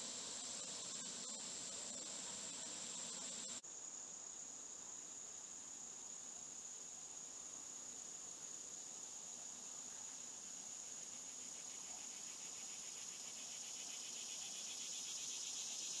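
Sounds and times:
high-pitched insect drone: 0:00.0 - 0:03.6, 0:10.5 - 0:16.0
rapidly pulsing insect trill: 0:00.0 - 0:16.0.

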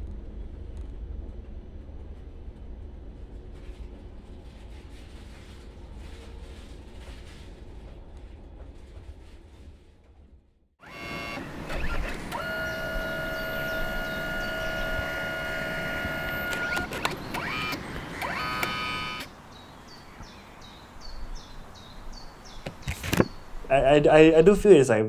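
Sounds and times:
photo printer motor whine: 0:10.8 - 0:19.3.

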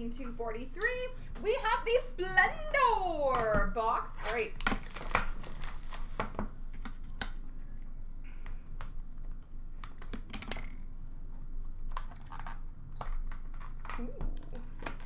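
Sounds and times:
cards and packaging clicking and rustling: 0:04.2 - 0:07.5, 0:11.6 - 0:15.0.

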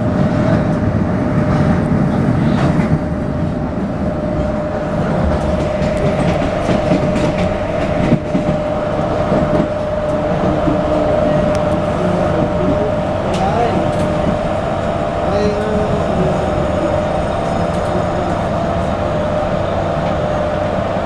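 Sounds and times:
wheels rumbling on rail: 0:00.0 - 0:21.0.

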